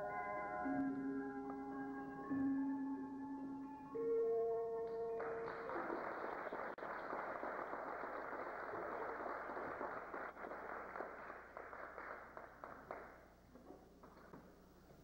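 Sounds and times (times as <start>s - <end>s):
music: 0.0s - 6.8s
audience applause: 5.2s - 13.2s.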